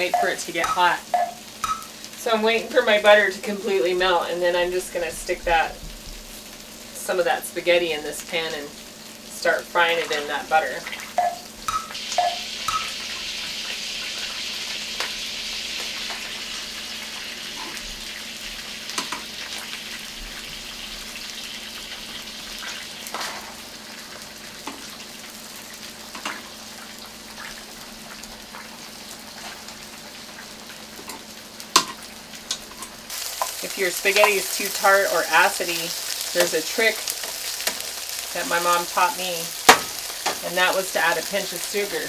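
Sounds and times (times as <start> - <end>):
spaghetti sizzling in butter: 0.0 - 42.0
utensils clinking against pans: 31.8 - 34.7.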